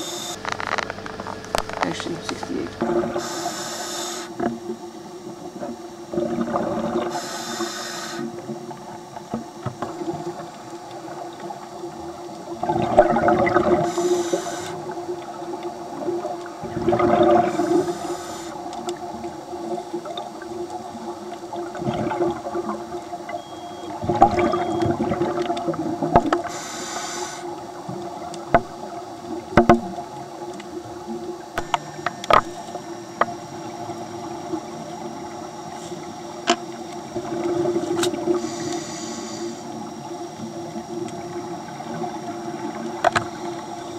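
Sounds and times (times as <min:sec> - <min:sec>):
regulator inhale hiss: 0:03.1 - 0:04.4, 0:07.1 - 0:08.4, 0:13.8 - 0:14.9, 0:17.4 - 0:18.7, 0:26.4 - 0:27.6, 0:38.1 - 0:39.9
exhale bubbling rush: 0:06.1 - 0:08.4, 0:12.6 - 0:15.0, 0:16.6 - 0:18.6, 0:37.2 - 0:39.8.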